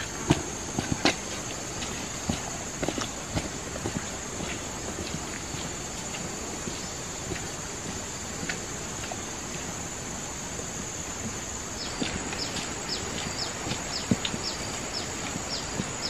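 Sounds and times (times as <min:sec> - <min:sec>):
high insect drone: 0:00.0 - 0:16.0.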